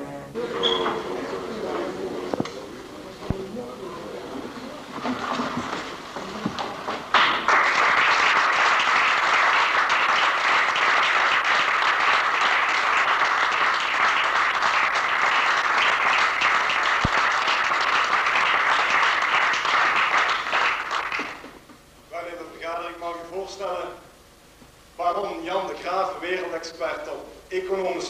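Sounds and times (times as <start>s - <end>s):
people applauding: 0.4s - 21.6s.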